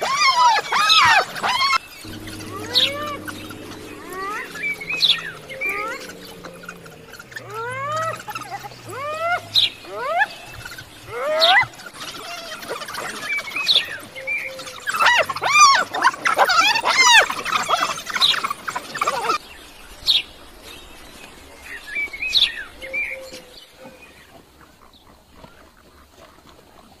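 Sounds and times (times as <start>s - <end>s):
wild dogs chirping and squealing: 0.0s - 19.4s.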